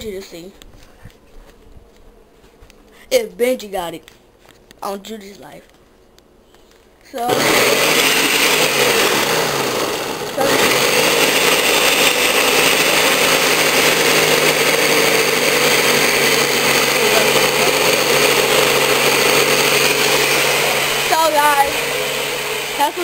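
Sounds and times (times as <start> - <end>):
blender running: 7.2 - 23.0.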